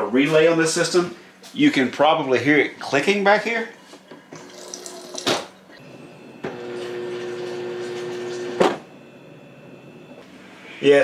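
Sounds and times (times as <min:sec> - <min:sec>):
refrigerator hum: 0:00.0 - 0:11.0
water flowing from dispenser: 0:04.4 - 0:05.4.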